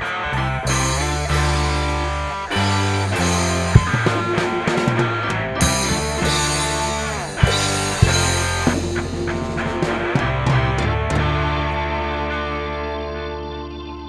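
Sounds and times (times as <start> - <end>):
funk-rock band music: 0.0 - 14.0
sharp drum hits: 3.5 - 5.0, 5.6 - 10.4.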